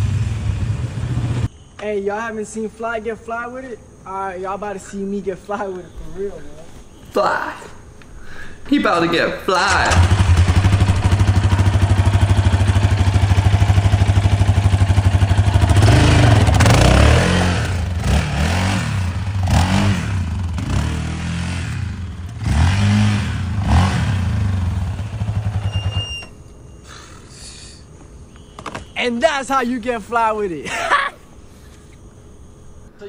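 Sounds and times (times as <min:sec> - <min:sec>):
quad engine revving: 0:09.8 - 0:25.7.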